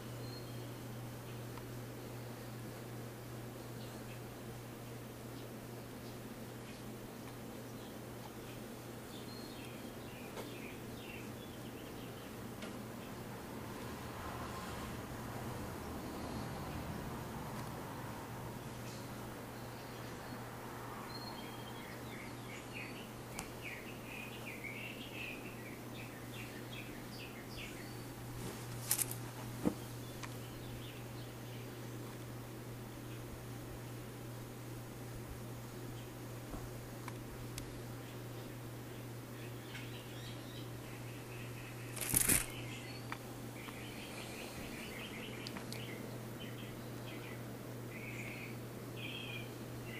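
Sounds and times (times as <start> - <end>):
faint high chirps: 0.0 - 1.4
low hum and hiss: 0.0 - 49.9
brief rustle: 28.4 - 29.8, 41.9 - 42.6
small clicks: 41.9 - 42.5.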